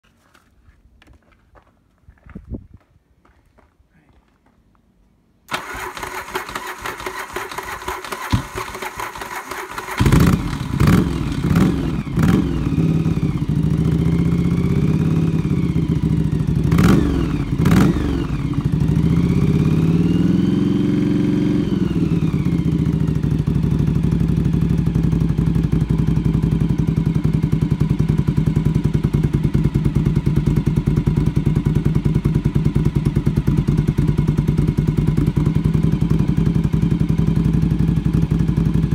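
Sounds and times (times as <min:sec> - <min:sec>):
electric starter cranking: 0:05.5 - 0:10.9
motorcycle engine revving and idling: 0:05.5 - 0:38.9.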